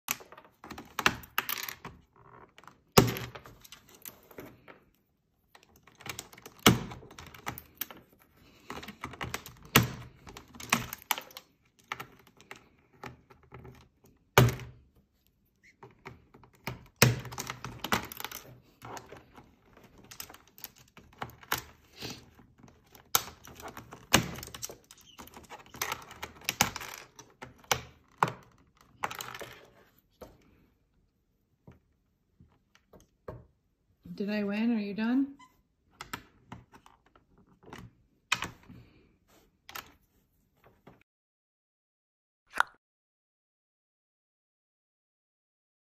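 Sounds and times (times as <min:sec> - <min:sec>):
plastic keyboard keys clicking: 0:05.6 - 0:14.6, 0:15.9 - 0:29.7.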